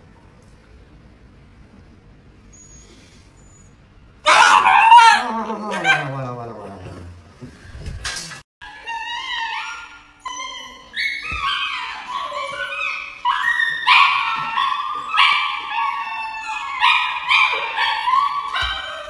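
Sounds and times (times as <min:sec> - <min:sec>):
dog howling and whining: 0:04.2 - 0:07.0, 0:08.6 - 0:19.0.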